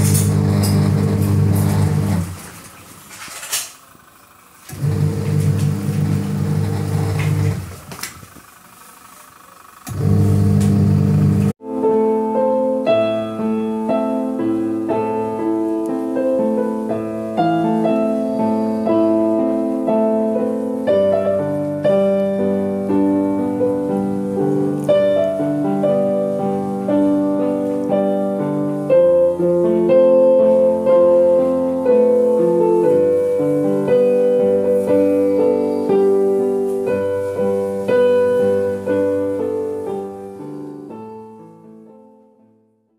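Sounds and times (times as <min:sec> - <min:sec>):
piano music: 0:11.5 - 0:42.8.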